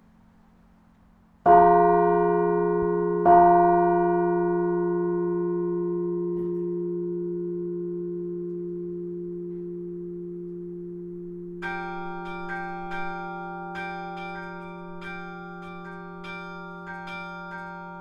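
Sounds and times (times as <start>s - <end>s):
carillon bells ringing: 1.5s - 18.0s.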